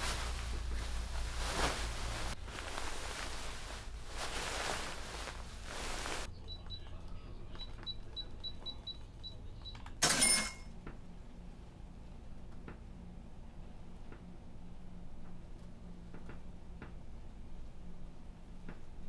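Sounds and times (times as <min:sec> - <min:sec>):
bedding rustling: 0:00.0 - 0:06.3
low steady hum: 0:00.0 - 0:19.0
high electronic beeps: 0:06.3 - 0:09.8
cash register sound effect: 0:10.0 - 0:10.7.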